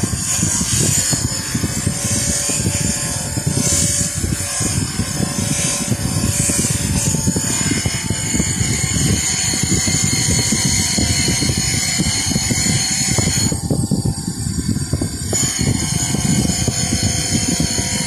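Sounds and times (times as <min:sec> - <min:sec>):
bench grinder whirring: 0:00.0 - 0:18.0
metal rubbing on grinding wheel: 0:00.0 - 0:18.0.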